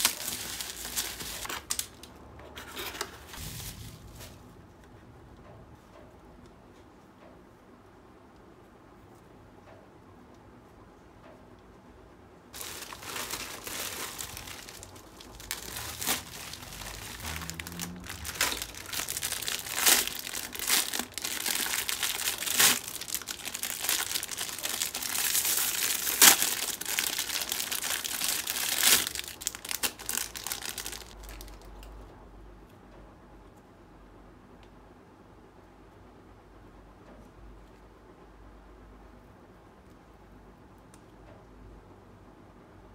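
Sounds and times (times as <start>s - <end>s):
plastic bags crinkling: 0.0s - 4.5s, 12.6s - 31.7s.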